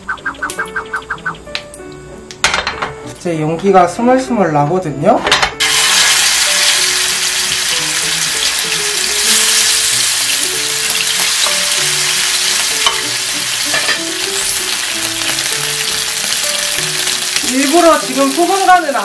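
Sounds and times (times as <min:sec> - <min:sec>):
steaks sizzling and spitting: 0:05.6 - 0:19.0.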